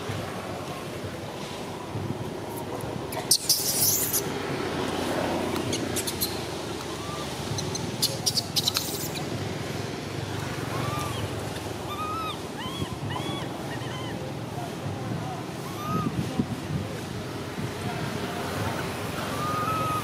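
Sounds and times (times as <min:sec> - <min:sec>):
wind: 0:00.0 - 0:20.0
baby monkey squeaking: 0:03.1 - 0:04.3, 0:05.7 - 0:09.4, 0:10.7 - 0:14.2, 0:15.6 - 0:16.2, 0:19.3 - 0:20.0.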